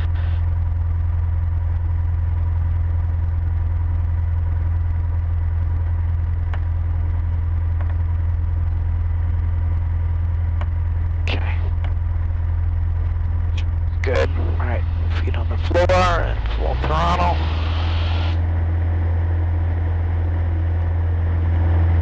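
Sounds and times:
plane engine idling: 0.0s - 22.0s.

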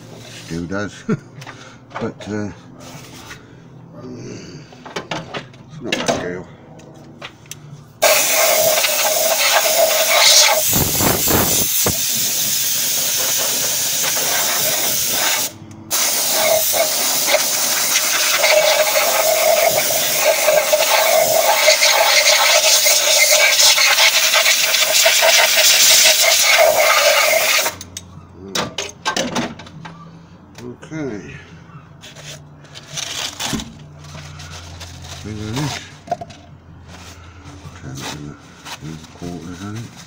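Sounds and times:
air blow gun hissing: 8.0s - 27.8s.

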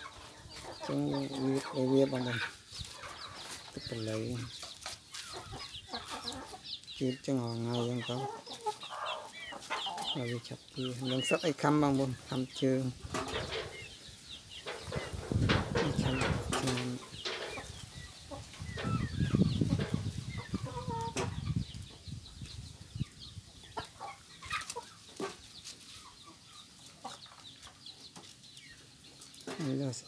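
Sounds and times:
chickens clucking: 0.0s - 30.0s
rustling and bumping from handling: 14.7s - 17.7s.

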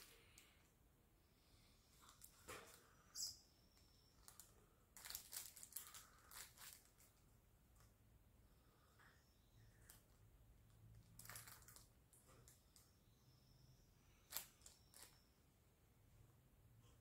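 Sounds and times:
faint clicks and rustles: 1.9s - 8.0s, 8.9s - 12.9s, 14.2s - 15.3s.

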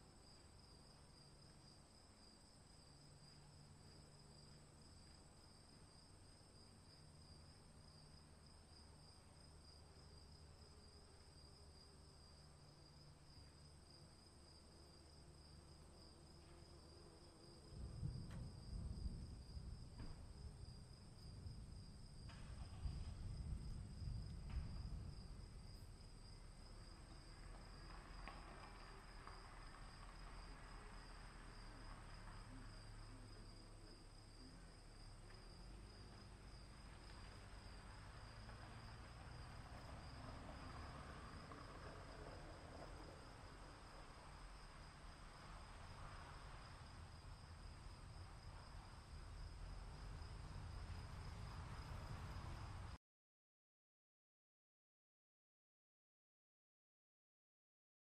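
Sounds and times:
low rumble: 17.6s - 28.4s.

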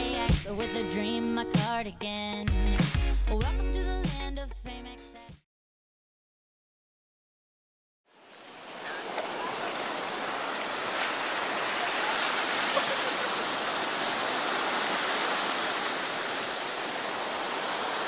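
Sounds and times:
ocean waves breaking on sand: 8.1s - 18.0s.

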